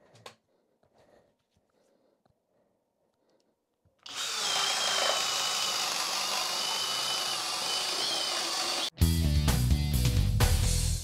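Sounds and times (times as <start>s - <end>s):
drill bit chewing wood: 4.0s - 8.9s
drill motor whine: 4.1s - 8.9s.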